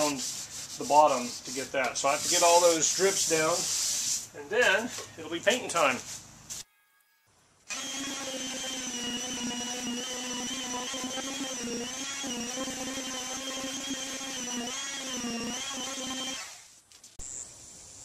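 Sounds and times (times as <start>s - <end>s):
electric sander whining: 6.9s - 16.6s.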